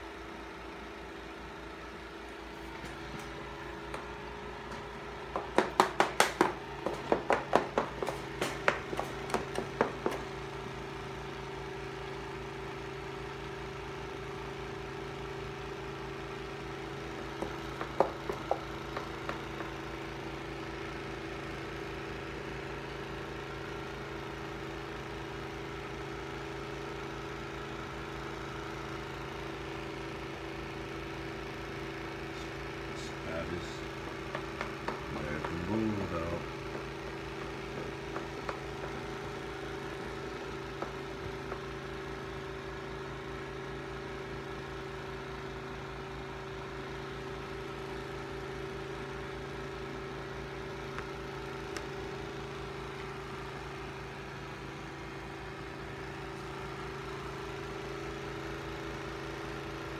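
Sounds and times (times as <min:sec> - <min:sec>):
air conditioner humming: 0:00.0 - 0:13.8, 0:15.2 - 0:21.7, 0:31.6 - 0:57.8.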